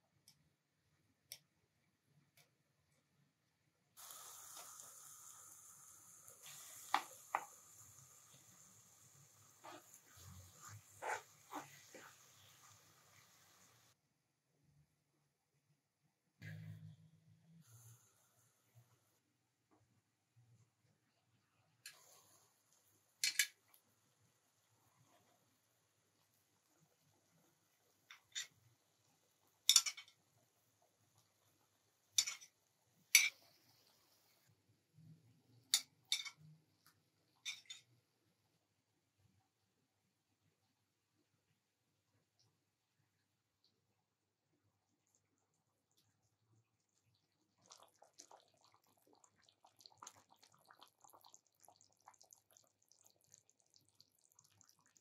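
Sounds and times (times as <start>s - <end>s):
water trickling into a pan: 45.0s - 55.0s.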